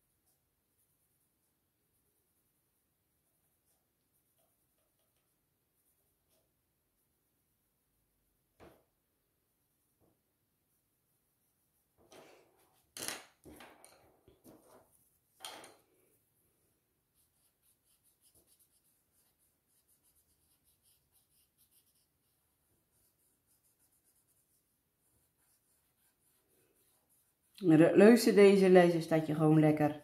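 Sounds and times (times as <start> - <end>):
pencils knocking on wooden table: 12.0 - 14.8, 15.4 - 15.8.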